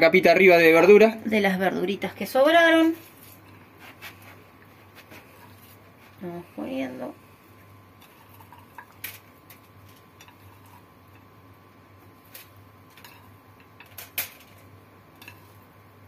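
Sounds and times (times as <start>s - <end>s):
aluminium foil crinkling: 2.8s - 6.3s, 8.0s - 11.3s, 12.1s - 15.7s.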